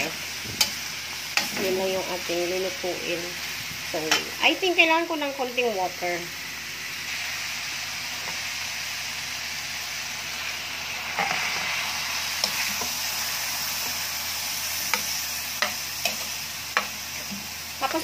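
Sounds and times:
food sizzling in a wok: 0.0s - 18.0s
metal spatula scraping a pan: 11.2s - 13.1s.

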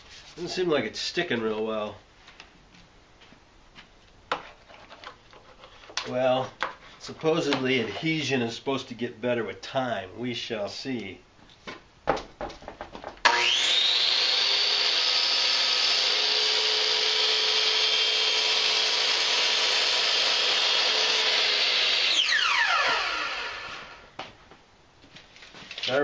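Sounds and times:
miter saw running: 13.2s - 24.1s.

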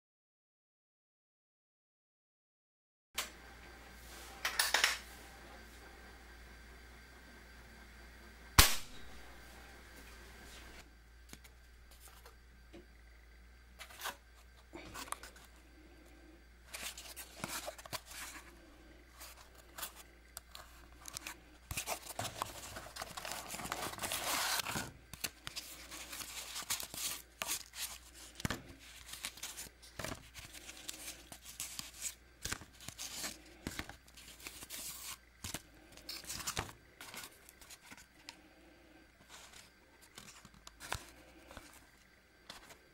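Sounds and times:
cardboard rustling and scraping: 13.8s - 15.5s, 16.7s - 18.5s, 19.1s - 38.2s, 39.2s - 42.9s
cardboard tearing: 21.7s - 33.4s.

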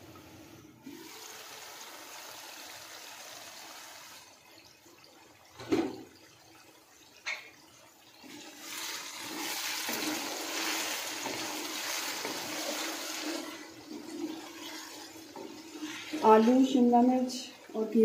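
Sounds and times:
curry sizzling in a wok: 8.5s - 17.0s
wooden spatula stirring: 9.0s - 17.1s.

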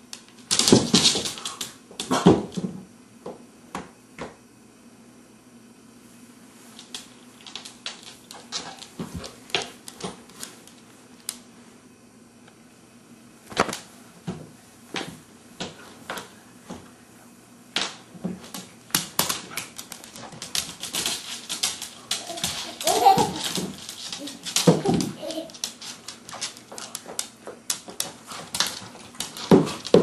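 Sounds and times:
dog claws clicking on wood floor: 6.8s - 11.4s, 17.8s - 30.0s.

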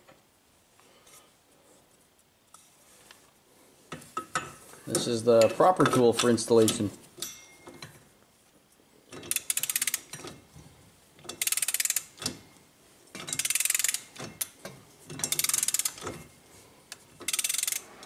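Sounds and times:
ratchet clicking: 9.1s - 10.4s, 11.2s - 12.4s, 13.2s - 16.3s, 16.9s - 17.9s.

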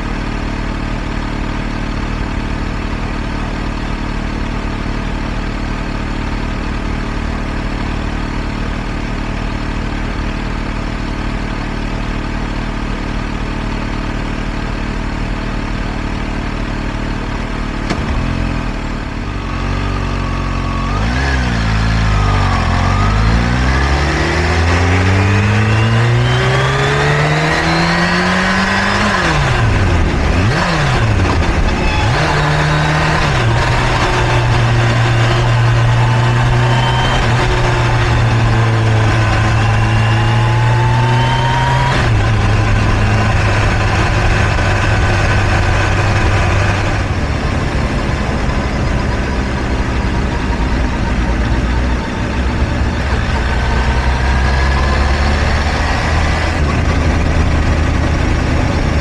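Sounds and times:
motorcycle engine idling: 0.0s - 21.0s, 42.1s - 54.4s
motorcycle accelerating through gears: 0.0s - 59.0s.

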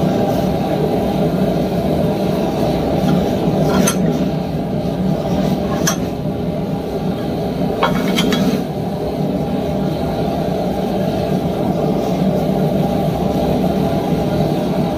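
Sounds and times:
metal tools clinking on vise: 3.6s - 4.1s, 5.7s - 6.1s.

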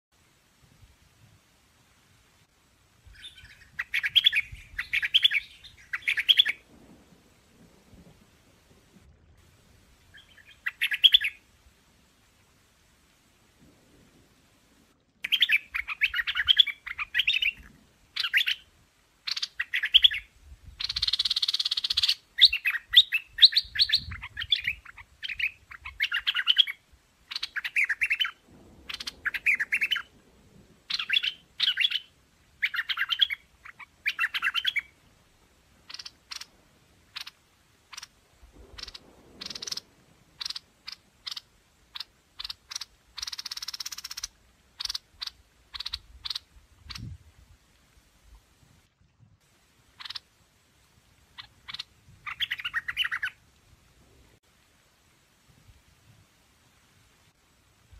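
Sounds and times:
bird chirping phrases: 3.2s - 6.5s.

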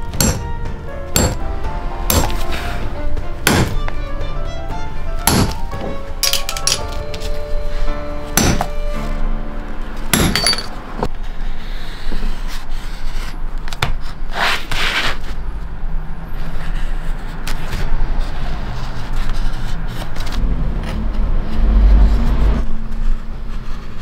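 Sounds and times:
soft background music: 0.0s - 11.1s.

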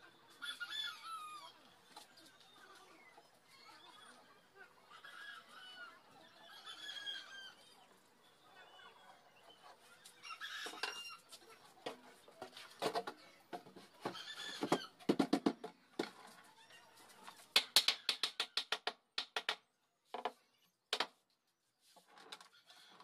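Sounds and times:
chickens clucking: 0.0s - 15.2s.

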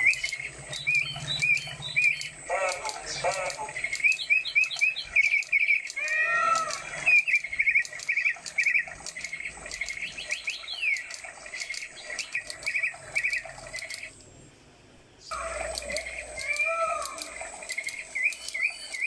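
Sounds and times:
fast ticking: 0.0s - 14.1s
toy bird chirps through speaker: 0.0s - 14.1s, 15.3s - 19.0s.

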